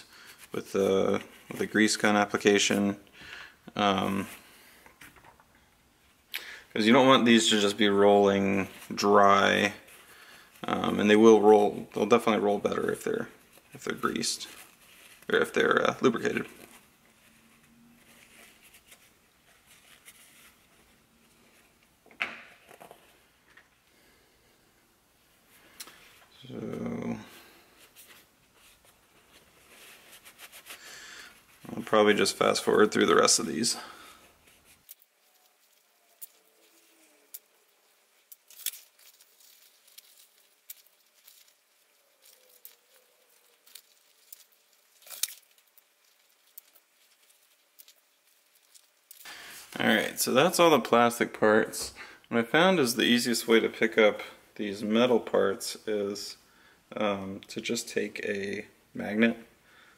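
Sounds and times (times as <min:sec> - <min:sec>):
paper towel rustling: 0:06.8 - 0:21.9, 0:25.5 - 0:51.9.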